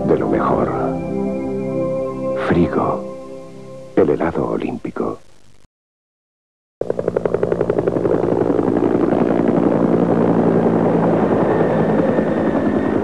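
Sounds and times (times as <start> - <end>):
loud sustained drone: 0.0 - 4.0.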